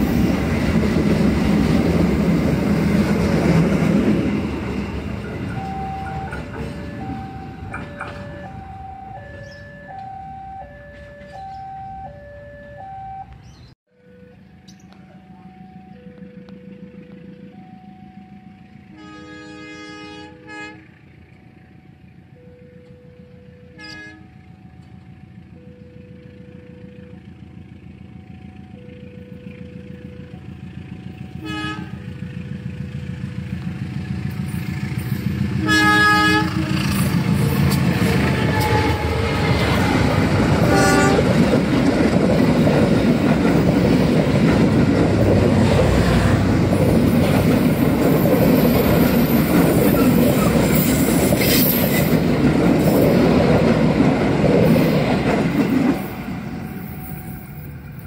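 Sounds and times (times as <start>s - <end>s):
train rumbling past: 0.0s - 58.0s
alternating two-note tone: 5.6s - 34.3s
locomotive horn blasts: 18.4s - 21.1s, 22.6s - 24.6s, 31.3s - 32.4s, 35.6s - 37.2s, 37.9s - 41.4s.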